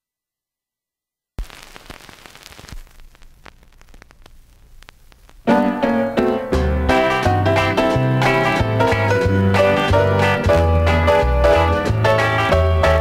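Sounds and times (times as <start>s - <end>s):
vinyl surface hiss and crackles: 1.4s - 7.2s
record music: 1.4s - 13.0s.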